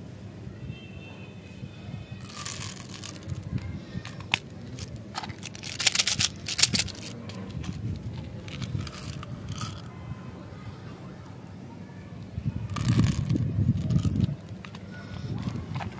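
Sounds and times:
plastic toys rustling: 2.2s - 9.9s, 12.6s - 15.9s
plastic clicks and rattles: 2.3s - 9.9s.

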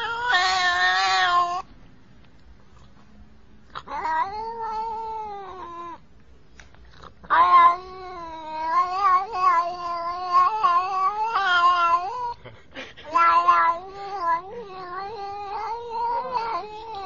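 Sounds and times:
cat meowing: 0.0s - 1.7s, 3.7s - 6.0s, 7.2s - 12.4s, 13.1s - 17.0s.

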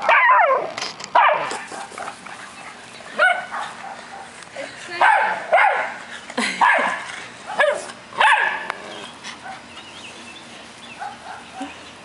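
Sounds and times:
dog barking: 1.2s - 1.9s, 3.2s - 4.3s, 5.0s - 6.0s, 6.6s - 8.7s, 11.0s - 11.7s.

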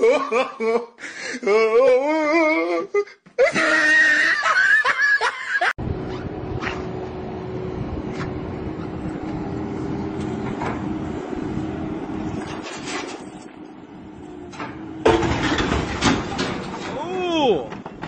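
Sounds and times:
man laughing loudly: 0.0s - 5.8s
diesel engine running: 5.8s - 18.0s.

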